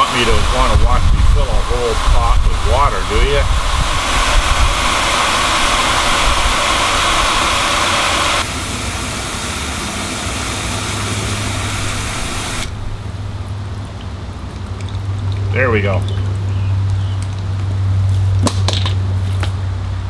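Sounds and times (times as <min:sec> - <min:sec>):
hose nozzle spraying water into pot: 0:00.0 - 0:13.2
low hum: 0:00.0 - 0:18.1.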